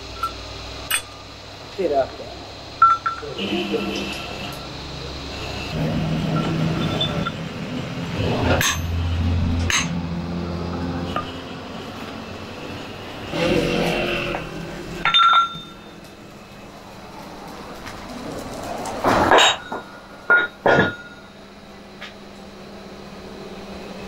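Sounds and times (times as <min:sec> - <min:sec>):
steady low hum: 0:00.0 - 0:24.0
workshop background noise: 0:00.0 - 0:24.0
ringing metal clank: 0:08.6 - 0:09.0, 0:15.0 - 0:16.0, 0:19.3 - 0:21.3
metal shafts clinking: 0:15.0 - 0:16.1.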